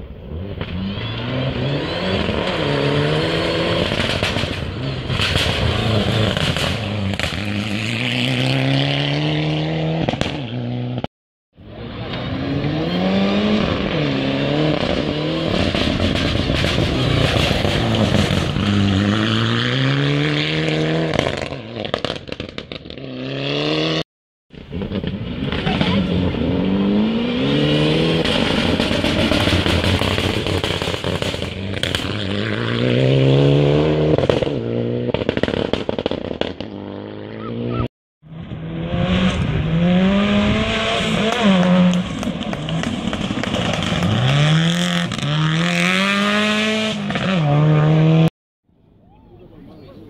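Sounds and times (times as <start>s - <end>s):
rally car engines at full throttle: 0.0s - 24.0s, 24.6s - 48.3s
gravel spraying and clattering: 41.9s - 44.4s.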